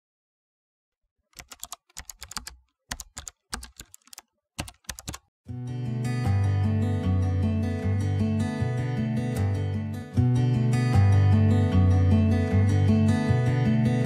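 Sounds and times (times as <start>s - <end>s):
keyboard typing clicks: 1.3s - 5.2s
music: 5.5s - 14.0s.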